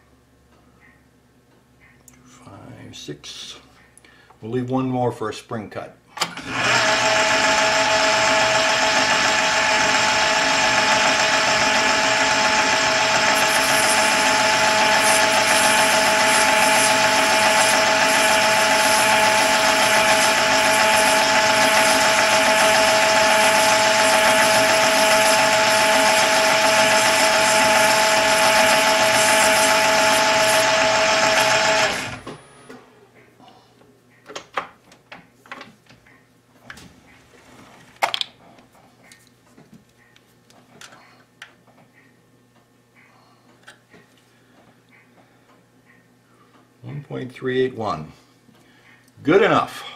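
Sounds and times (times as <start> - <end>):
metal lathe whining: 6.3 - 32.5.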